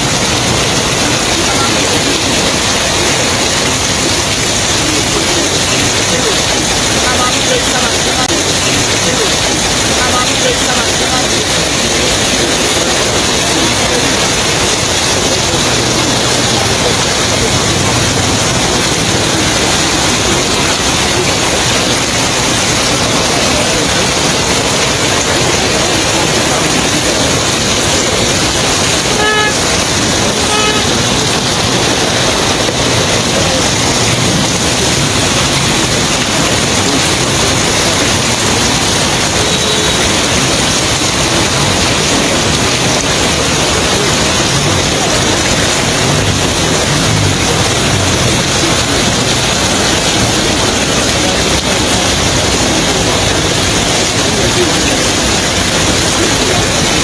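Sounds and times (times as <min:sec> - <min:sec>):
loud rushing noise: 0:00.0 - 0:57.0
vehicle horn tooting: 0:29.1 - 0:29.8, 0:30.4 - 0:31.2.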